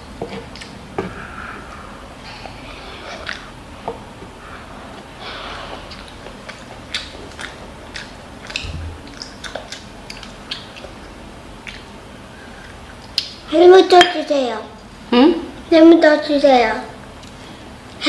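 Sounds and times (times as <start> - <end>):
child chewing with wet mouth clicks: 0.3 - 0.8, 3.2 - 3.5, 5.7 - 13.4.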